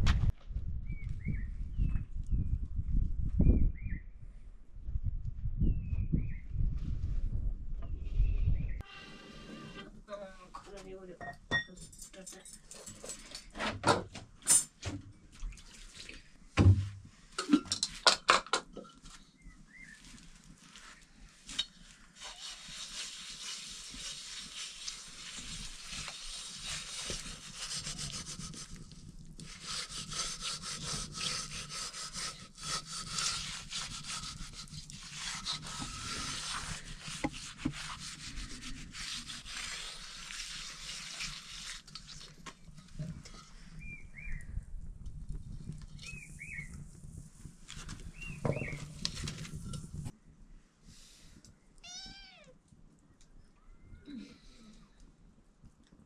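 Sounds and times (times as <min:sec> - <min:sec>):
hard rubbing or scraping: 0:08.8 - 0:10.0, 0:21.5 - 0:44.0, 0:45.7 - 0:50.1.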